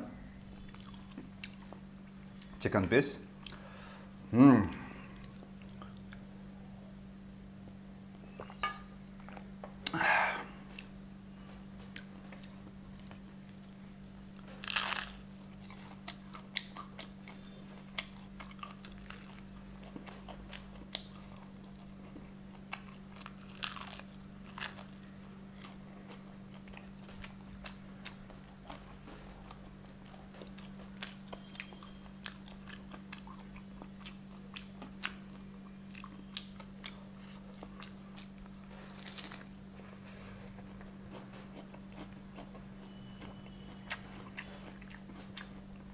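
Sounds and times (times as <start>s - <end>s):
steady low hum: 0.0s - 45.9s
chewing crispy chicken: 0.6s - 2.6s, 11.8s - 45.9s.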